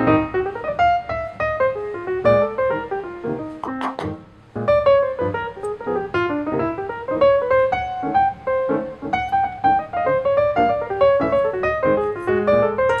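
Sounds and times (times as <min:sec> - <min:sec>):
light piano tune: 0:00.0 - 0:13.0.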